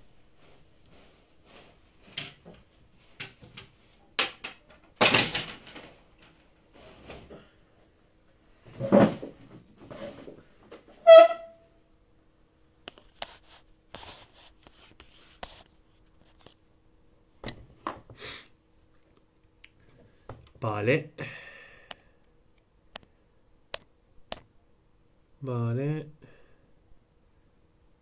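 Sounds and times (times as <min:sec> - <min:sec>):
high-pitched squeak: 0:11.0 - 0:11.6.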